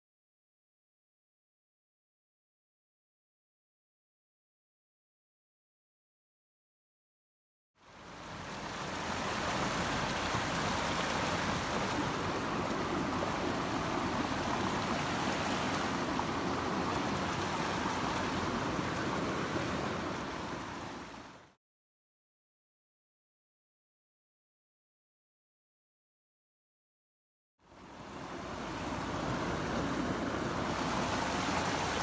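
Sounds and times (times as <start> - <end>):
steady rushing noise: 28.1 - 32.0.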